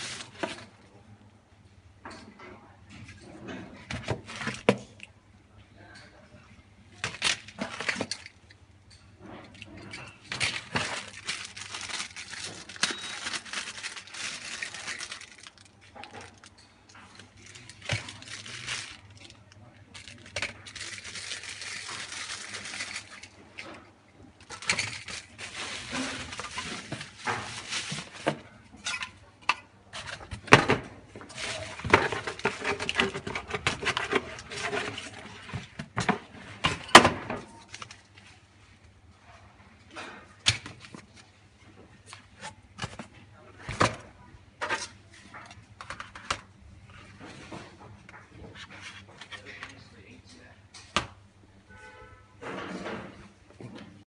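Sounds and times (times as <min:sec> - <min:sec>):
plastic bags rustling: 0:00.0 - 0:00.8, 0:07.0 - 0:08.5, 0:09.5 - 0:28.7, 0:29.9 - 0:36.9.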